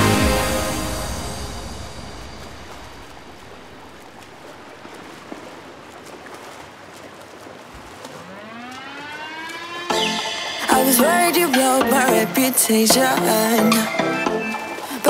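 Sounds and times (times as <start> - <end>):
music: 0.0 - 2.5, 9.9 - 15.0
rising tone: 0.0 - 4.1, 8.2 - 11.5
pool water lapping: 0.0 - 15.0.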